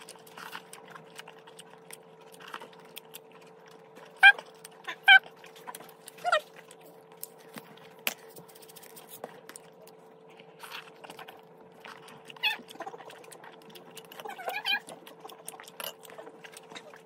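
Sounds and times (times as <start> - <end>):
faint steady hum: 0.0 - 17.0
pet whining: 3.3 - 6.8, 12.1 - 17.0.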